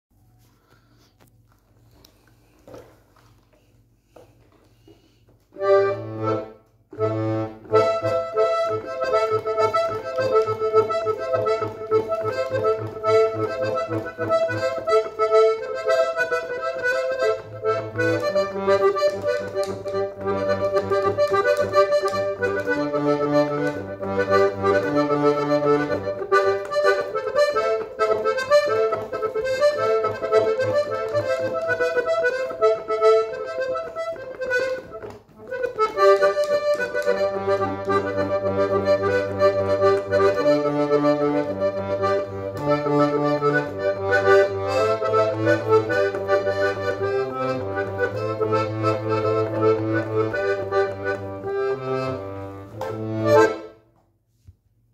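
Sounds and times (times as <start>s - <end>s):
piano accordion melody: 4.7s - 53.9s.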